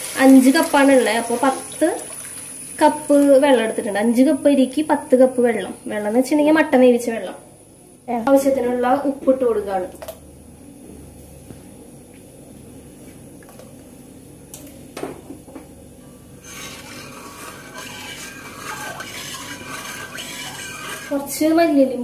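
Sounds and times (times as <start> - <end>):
metal ladle scraping a pot: 16.4 - 21.6.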